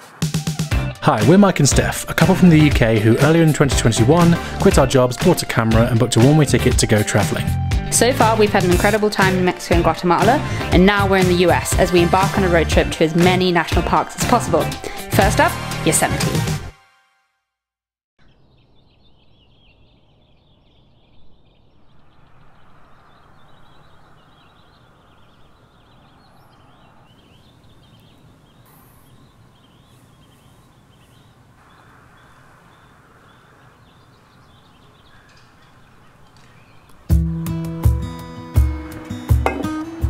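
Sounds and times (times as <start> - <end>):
small birds chirping: 18.2 - 40.0.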